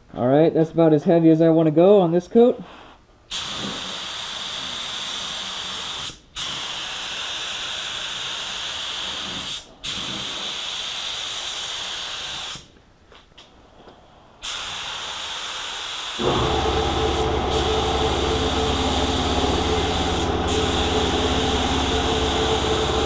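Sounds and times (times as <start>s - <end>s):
spray gun hissing: 14.4s - 23.0s.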